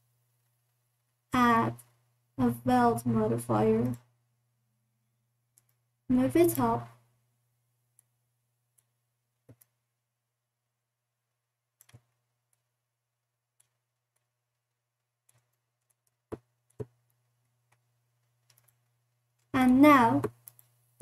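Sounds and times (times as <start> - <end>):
faint steady hum: 0.0 - 21.0
computer mouse clicks: 3.8 - 4.1, 5.5 - 5.8, 8.7 - 9.8, 11.8 - 12.7, 13.6 - 20.8.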